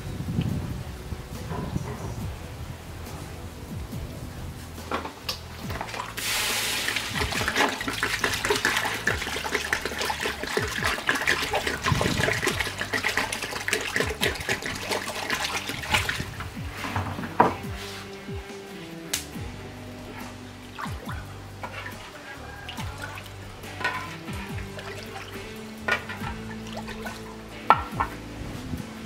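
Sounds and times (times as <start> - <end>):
liquid splashing and spattering: 5.6 - 17.2, 20.0 - 28.3
water hissing in hot wok: 5.8 - 16.9.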